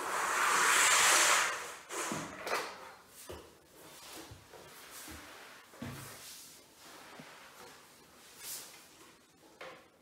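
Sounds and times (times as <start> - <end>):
soft rubbing and rustling: 3.1 - 9.6.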